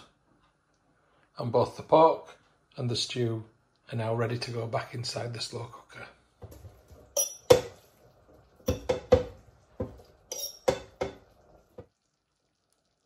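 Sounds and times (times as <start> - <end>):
metal fork clinking on a plate: 10.3 - 10.9.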